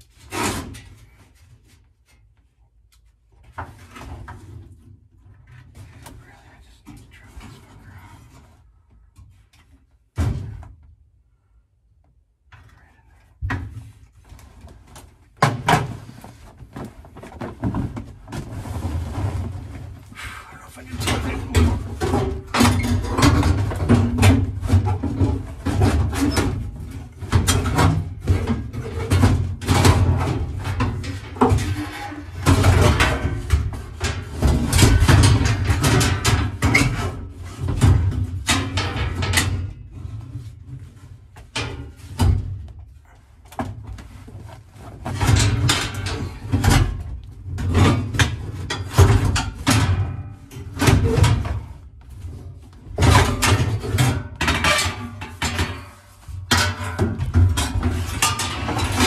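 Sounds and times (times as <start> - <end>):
sheet metal clanking and scraping: 20.8 - 42.7, 45.0 - 59.0.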